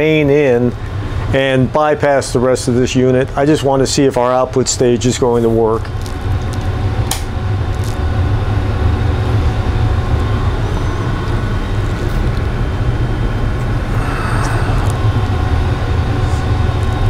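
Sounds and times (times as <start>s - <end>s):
machine-like drone: 5.9s - 17.0s.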